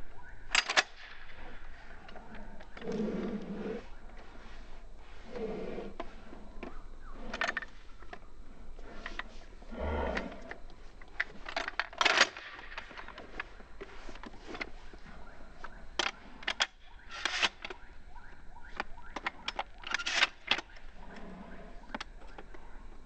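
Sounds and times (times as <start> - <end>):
shotgun shells clicking into magazine: 0.5 - 1.1, 11.2 - 13.1, 19.2 - 20.7.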